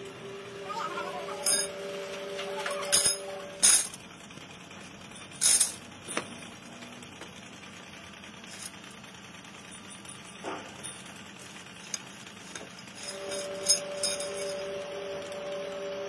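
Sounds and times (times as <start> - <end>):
metal sprockets clanking: 1.4 - 1.8, 2.5 - 4.0, 5.1 - 6.5, 8.4 - 9.0, 9.6 - 14.7.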